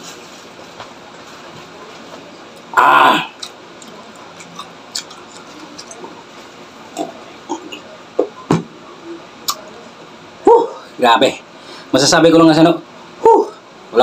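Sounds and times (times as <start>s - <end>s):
wet mouth clicks: 3.4s - 6.0s, 9.4s - 9.6s.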